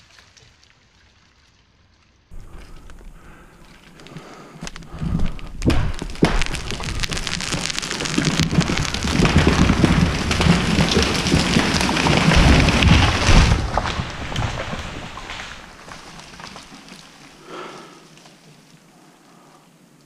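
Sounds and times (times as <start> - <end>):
tree trunk crashing down: 2.3 - 17.8
branches snapping and crashing: 2.3 - 18.8
wood cracking: 2.3 - 18.9.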